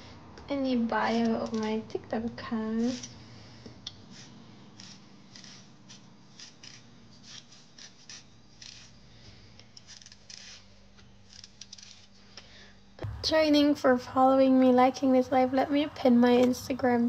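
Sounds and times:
peeler scraping potato skin: 0:01.0 - 0:01.9, 0:02.8 - 0:03.2, 0:03.9 - 0:12.2.

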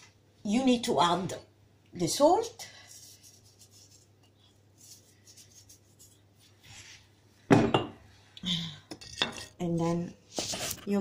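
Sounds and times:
knock on worktop: 0:07.5 - 0:08.0.

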